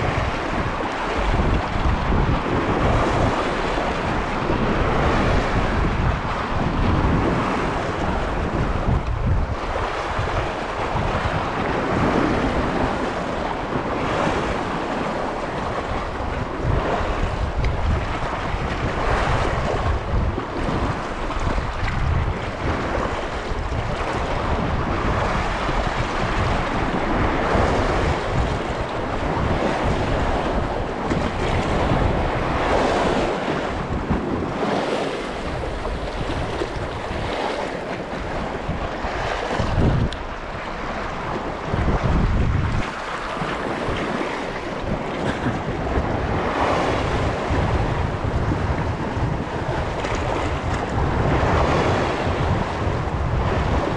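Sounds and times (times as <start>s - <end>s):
choppy sea waves: 0.0s - 53.9s
wind buffeting microphone: 0.0s - 53.9s.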